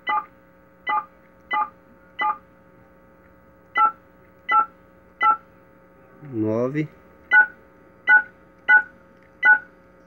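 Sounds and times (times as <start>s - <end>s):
phone keypad two-tone beeps: 8.1s - 9.6s.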